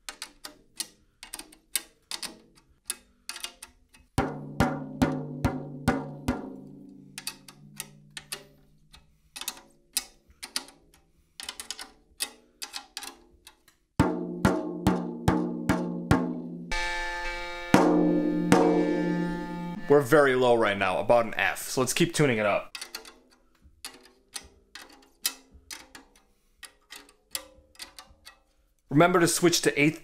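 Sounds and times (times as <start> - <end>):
drumstick tapping a tom head: 4.2 - 8.4, 14.0 - 16.8, 17.7 - 19.8.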